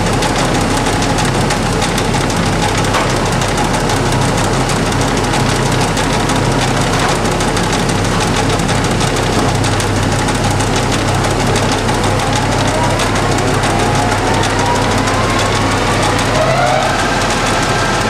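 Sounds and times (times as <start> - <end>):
fast ticking rattle: 0.0 - 18.0
lathe humming: 0.0 - 18.0
rising spindle whine: 10.3 - 18.0.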